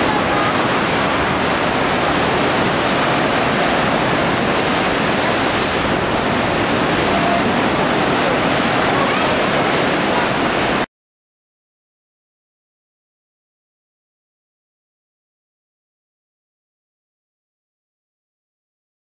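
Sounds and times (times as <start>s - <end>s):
wind rushing: 0.0s - 10.8s
choppy sea on shore: 0.0s - 10.9s.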